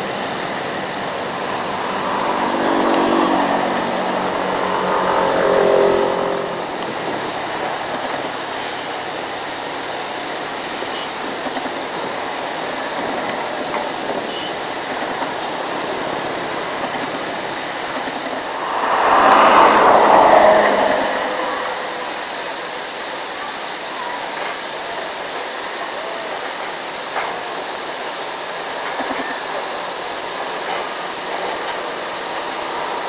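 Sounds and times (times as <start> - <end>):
loud rush of noise: 0.0 - 9.8, 14.6 - 25.3
steady background rush: 15.5 - 23.1.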